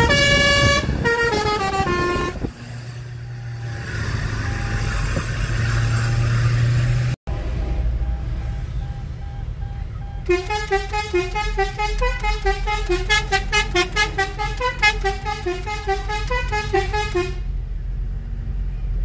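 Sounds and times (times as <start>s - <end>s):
multi-tone musical horn: 0.0s - 2.5s, 10.3s - 17.5s
car rumbling on road: 0.0s - 19.0s.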